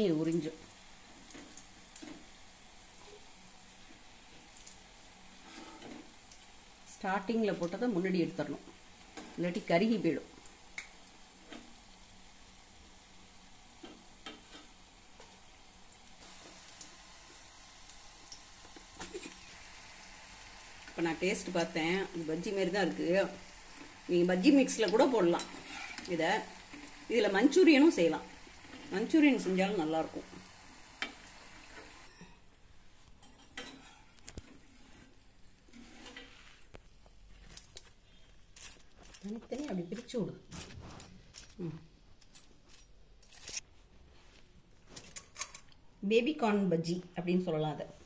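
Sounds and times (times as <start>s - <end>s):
food sizzling in hot oil: 0.0s - 32.5s.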